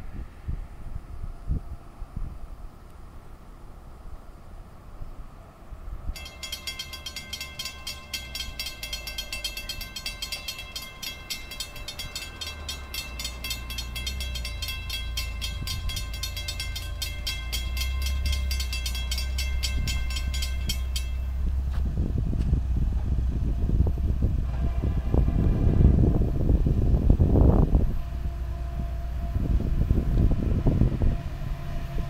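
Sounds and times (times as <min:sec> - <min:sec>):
railroad crossing bell ringing: 0:06.2 - 0:21.7
low rumble: 0:06.2 - 0:32.0.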